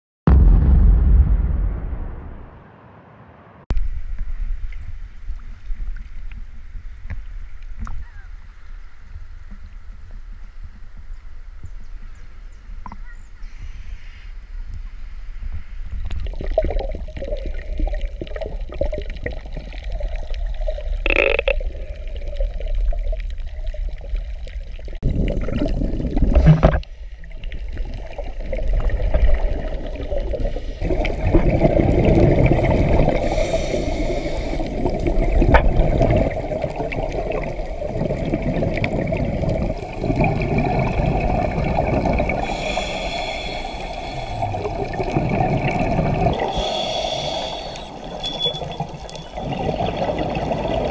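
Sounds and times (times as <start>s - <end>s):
water sloshing and gurgling: 15.5s - 50.9s
scuba exhaust bubbles: 16.0s - 50.9s.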